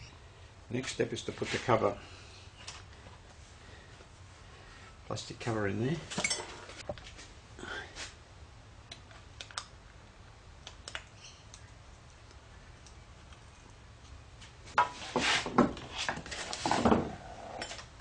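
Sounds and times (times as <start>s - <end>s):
knocking and rustling of parts: 14.4s - 17.9s.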